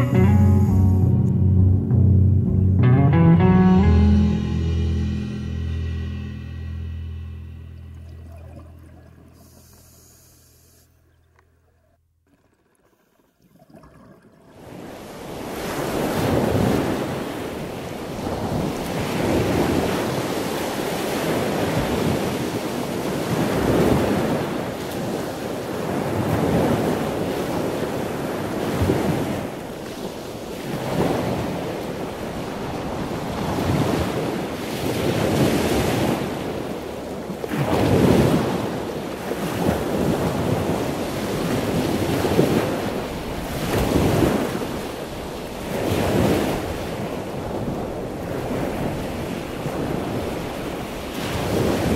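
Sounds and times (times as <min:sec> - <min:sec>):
sea waves breaking: 0:14.5 - 0:51.9.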